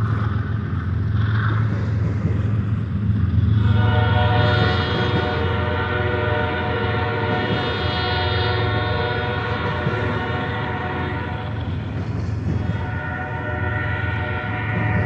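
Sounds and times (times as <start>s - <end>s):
freight train rumbling past: 0.0s - 15.0s
locomotive air horn chord: 3.6s - 11.7s, 12.6s - 15.0s.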